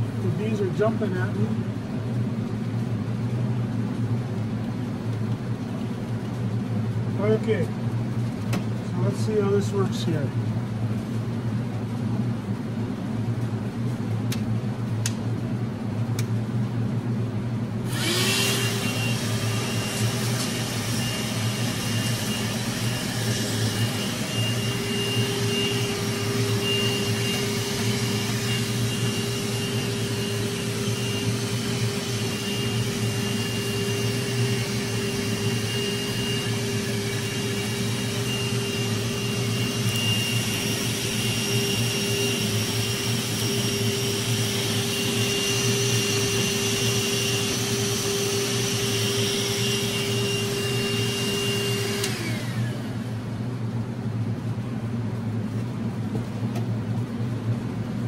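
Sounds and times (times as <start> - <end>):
steady low hum: 0.0 - 58.0
hand vacuum motor whine: 17.8 - 53.2.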